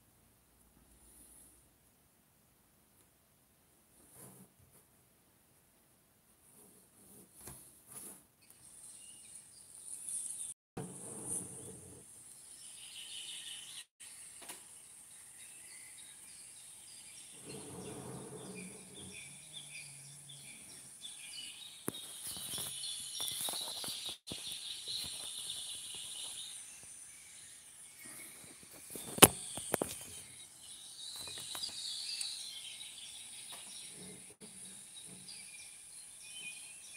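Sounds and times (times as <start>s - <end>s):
birds chirping: 11.1s - 36.9s.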